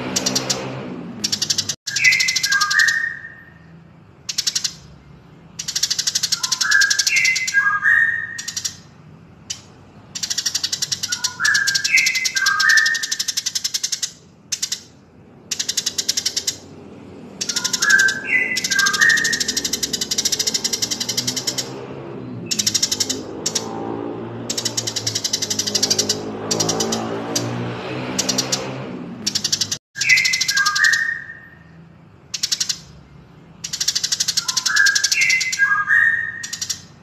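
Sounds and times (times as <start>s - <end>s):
fast high ticking bird chatter: 0.0s - 37.0s
whistled bird notes stepping downward: 1.3s - 3.5s, 17.4s - 21.6s, 29.3s - 31.6s, 33.7s - 36.9s.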